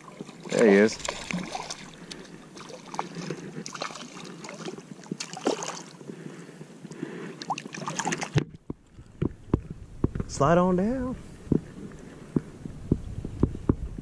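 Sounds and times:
wind and water wash: 0.0 - 6.2, 6.8 - 14.0
fish splashing at surface: 0.4 - 5.9.

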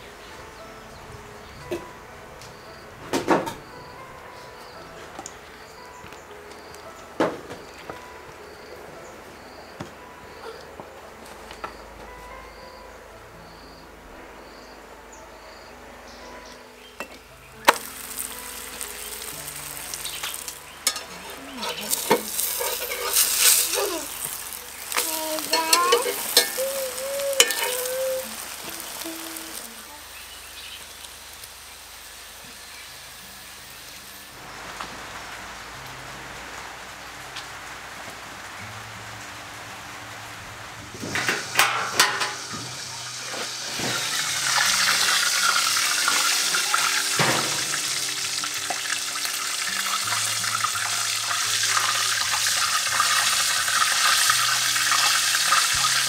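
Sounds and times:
steady rain falling: 17.2 - 56.0
pancake sizzling in hot oil: 17.6 - 34.8, 40.9 - 56.0.

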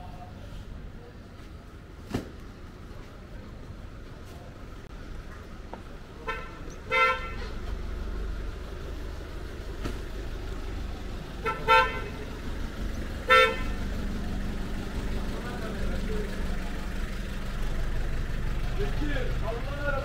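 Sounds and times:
low engine rumble: 0.0 - 20.0
vehicle horn toots: 6.2 - 7.6, 11.4 - 12.2, 13.2 - 13.9.

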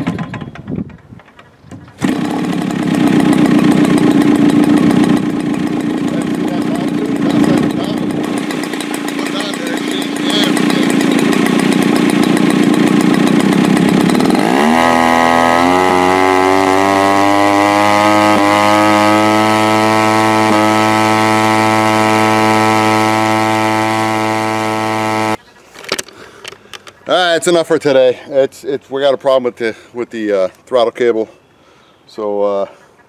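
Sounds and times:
two-stroke propeller engine running: 1.9 - 25.4.

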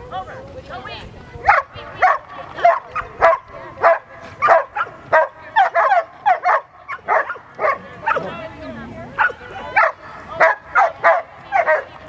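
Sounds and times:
dog barking rapidly: 1.5 - 8.3.

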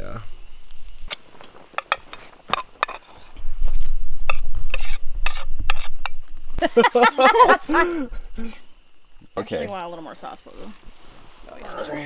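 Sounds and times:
food sizzling: 0.0 - 12.0
spatula scraping frying pan: 1.8 - 3.3, 4.3 - 6.2.

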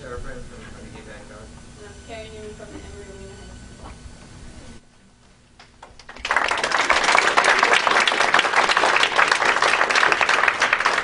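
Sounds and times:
audience applause: 5.8 - 11.0.

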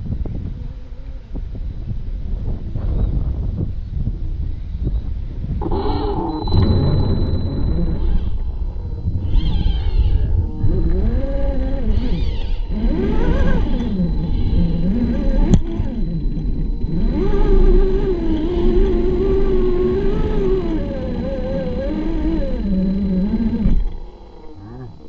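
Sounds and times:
electric motor whining: 5.6 - 25.0.

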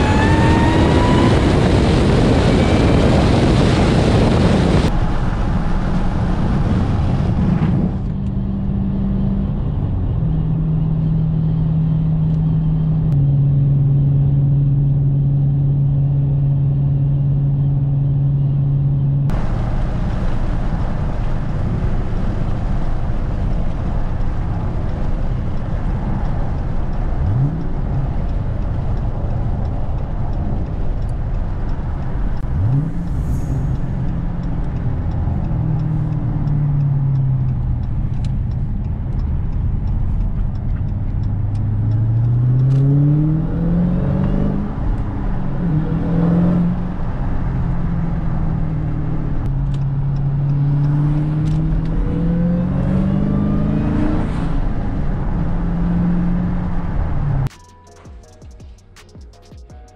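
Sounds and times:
car engine revving in cabin: 0.0 - 57.6.

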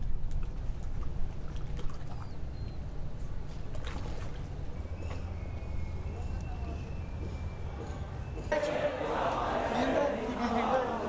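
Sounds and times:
water splashing against hull: 0.1 - 4.8.

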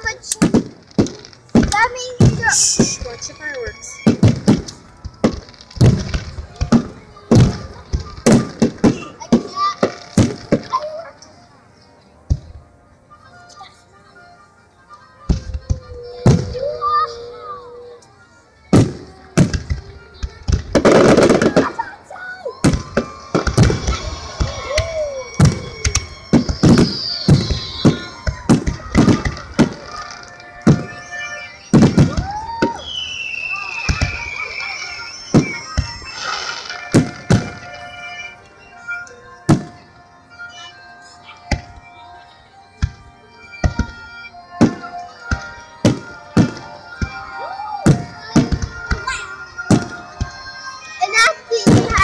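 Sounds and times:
music playing: 0.0 - 52.0
firework shells bursting: 22.6 - 38.2.

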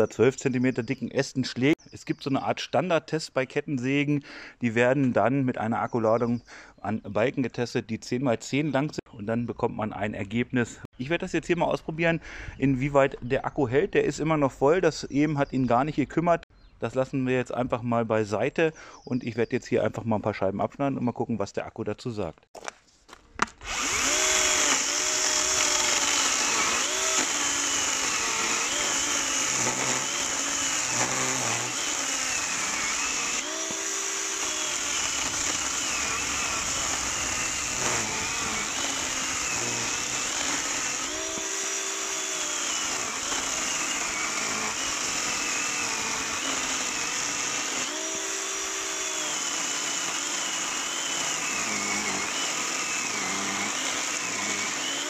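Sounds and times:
cordless chainsaw cutting wood: 23.4 - 55.0.

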